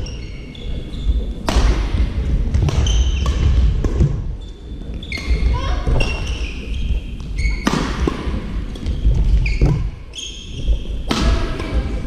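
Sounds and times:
shoes squeaking on court floor: 0.0 - 1.3, 4.4 - 7.8, 8.7 - 11.0
low rumble of sports hall: 0.0 - 12.0.

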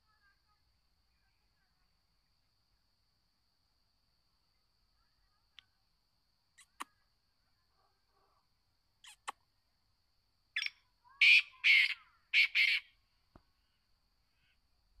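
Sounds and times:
francolin calling: 10.5 - 13.0.

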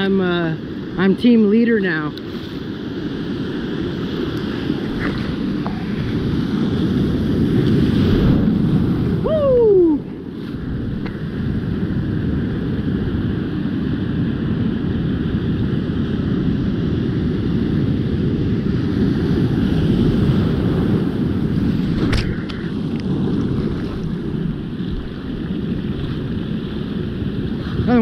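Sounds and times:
ocean surf breaking: 0.0 - 28.0
wind buffeting microphone: 0.0 - 28.0.

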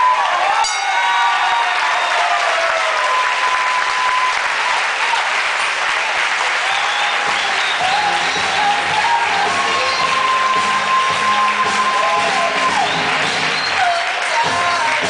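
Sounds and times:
crowd applauding: 0.0 - 15.0
music playing low: 7.8 - 13.6.

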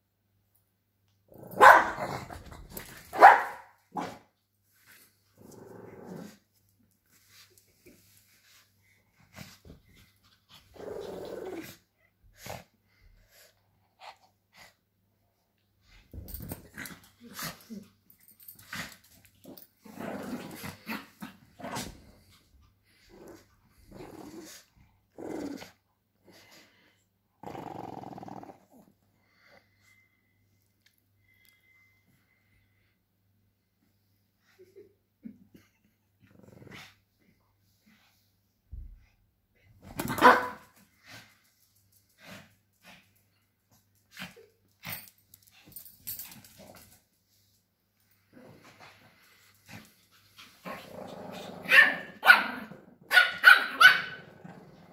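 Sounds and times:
puppies growling: 27.4 - 28.9, 50.6 - 53.0.

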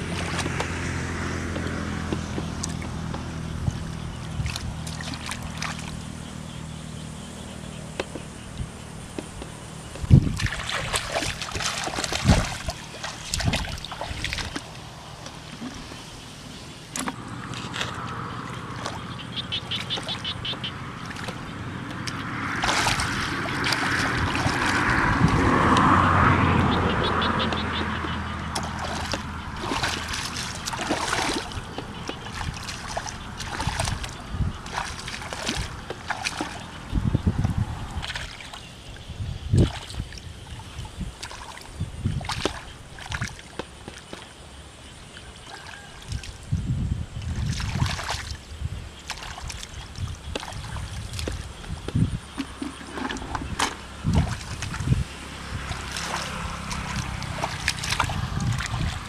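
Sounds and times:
hands sloshing through muddy water: 0.0 - 6.1, 9.9 - 38.7, 39.5 - 44.4, 47.2 - 59.0.

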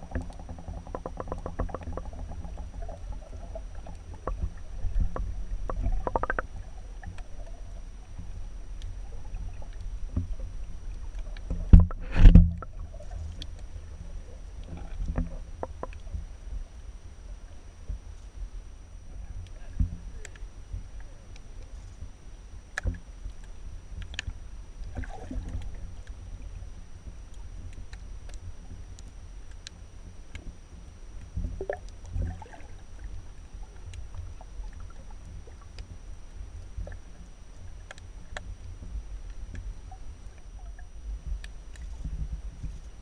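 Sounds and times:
sharp clicks and crackles: 0.0 - 7.6, 22.7 - 26.2
underwater rumble: 0.0 - 43.0.

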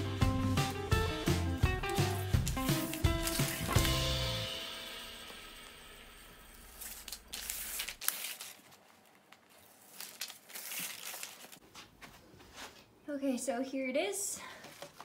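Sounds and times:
paper crinkling and rustling: 1.8 - 4.1, 6.7 - 12.0, 14.6 - 15.0.

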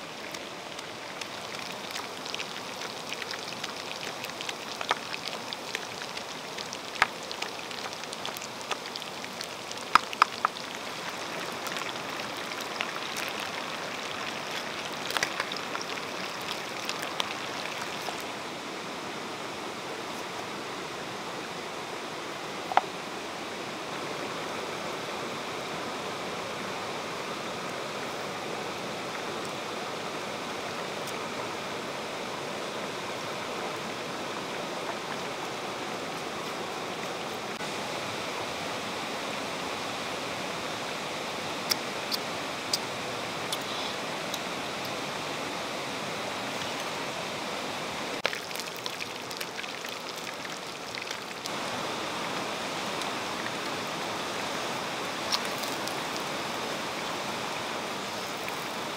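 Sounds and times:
stream water flowing: 0.0 - 58.9.

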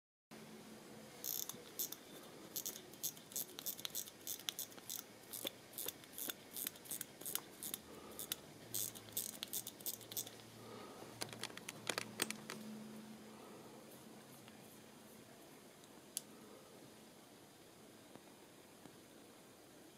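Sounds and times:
watch crown ratchet clicks: 1.2 - 10.4.

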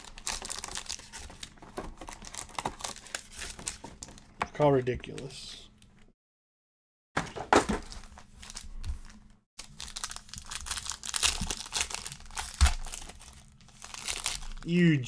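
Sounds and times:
foil wrapper crinkling and tearing: 0.0 - 4.2, 7.9 - 14.7.

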